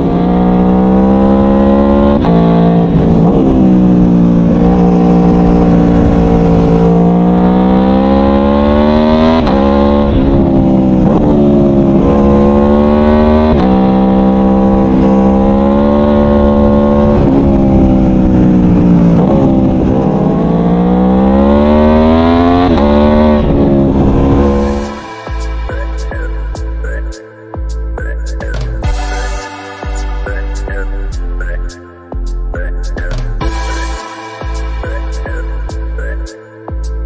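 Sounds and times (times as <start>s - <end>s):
motorcycle engine accelerating: 0.0s - 26.8s.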